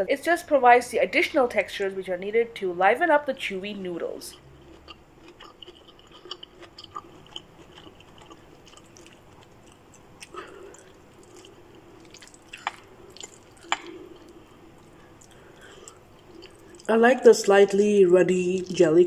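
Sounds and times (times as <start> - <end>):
soft squishy egg sounds: 4.3 - 17.0.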